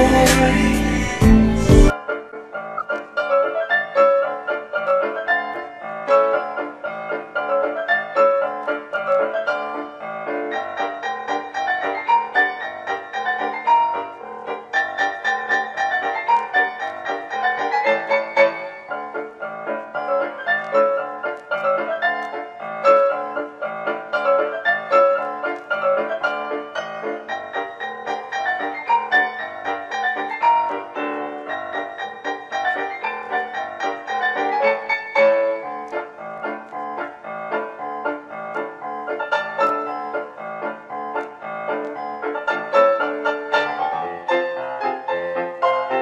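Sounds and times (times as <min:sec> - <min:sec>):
background piano music: 0:00.0 - 0:46.0.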